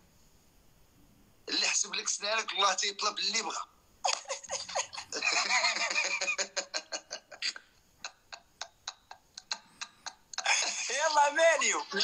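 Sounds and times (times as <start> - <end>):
men laughing: 4.1 - 12.0.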